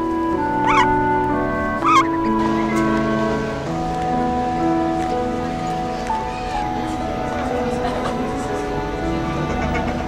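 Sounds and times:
background music with held notes: 0.0 - 10.0
duck quacks: 0.7 - 0.9, 1.8 - 2.8.

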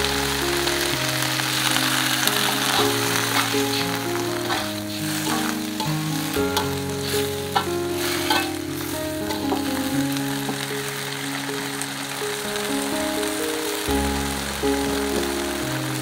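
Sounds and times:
soft music: 0.0 - 16.0
vegetables sizzling in a wok: 0.0 - 16.0
metal spatula scraping a pan: 2.2 - 9.8.

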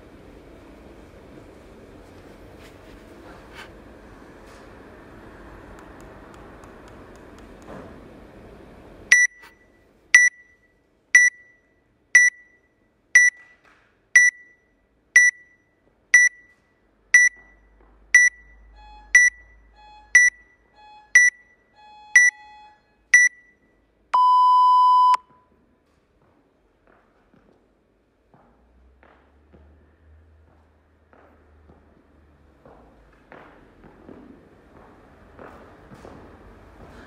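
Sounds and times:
long lower beep: 9.1 - 13.4, 14.2 - 16.5, 17.2 - 23.6, 24.2 - 25.3
short high timer beeps: 9.1 - 13.6, 14.2 - 16.6, 17.2 - 23.6, 24.2 - 25.3.

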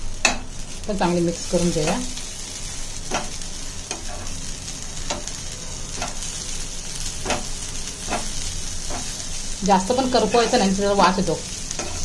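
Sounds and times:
food sizzling in oil: 0.0 - 12.0
stirring scrapes in pan: 1.9 - 4.5, 11.7 - 12.0.

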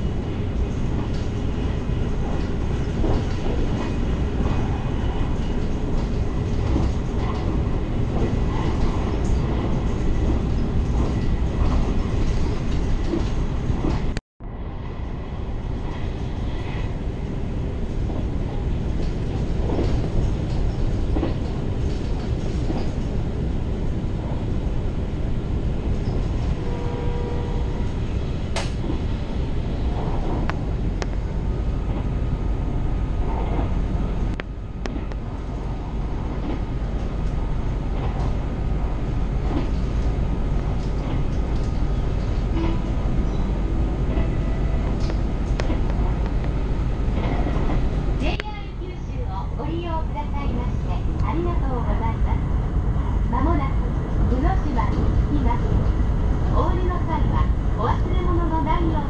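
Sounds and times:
train rumbling on track: 0.0 - 59.0
track clicks and knocks: 18.0 - 24.4, 28.4 - 29.2, 33.2 - 48.6.

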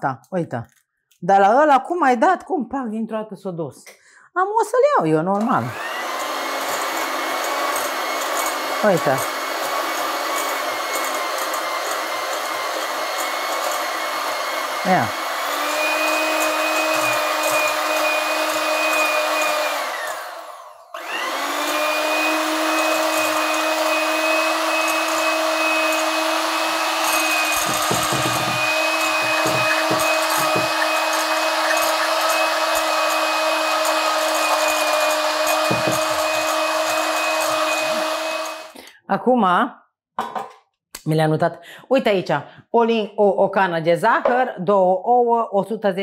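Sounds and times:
electric kitchen mixer running: 5.4 - 38.8.

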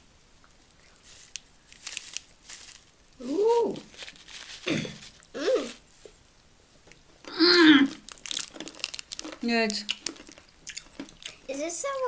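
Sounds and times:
plastic packet crinkling: 0.6 - 5.8, 7.3 - 11.6
short vocal sounds: 4.7 - 5.8.

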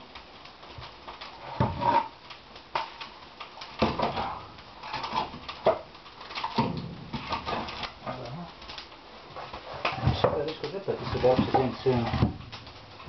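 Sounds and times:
logs thudding against steel: 5.2 - 7.8.

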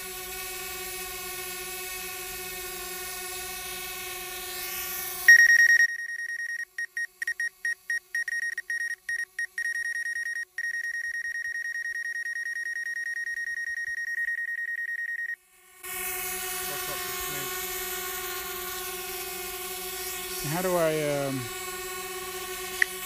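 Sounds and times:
high electronic beep: 5.3 - 15.4
drone propeller hum: 15.8 - 23.0.

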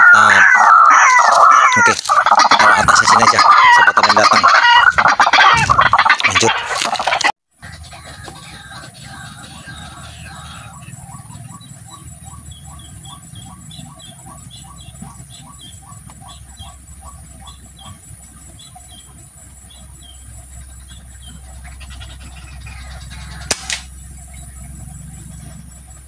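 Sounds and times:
air rifle firing: 23.5 - 23.9.

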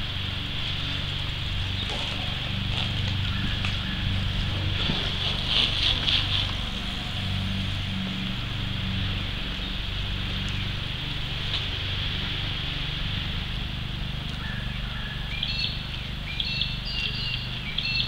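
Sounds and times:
river rushing: 0.0 - 17.7
bird chirping: 14.3 - 18.0.

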